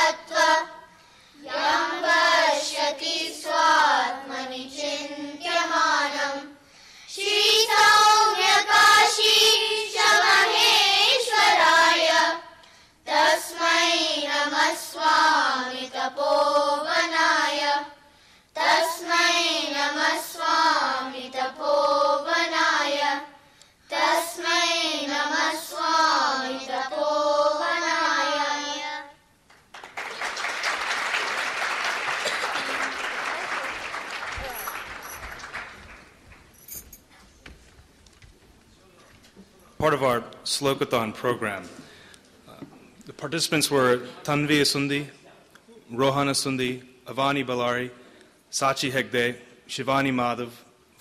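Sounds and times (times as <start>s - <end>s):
applause: 29.5s - 36.6s.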